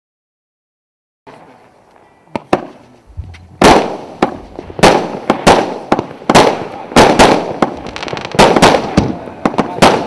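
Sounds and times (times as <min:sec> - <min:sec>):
firework bangs echoing: 0:02.3 - 0:10.0.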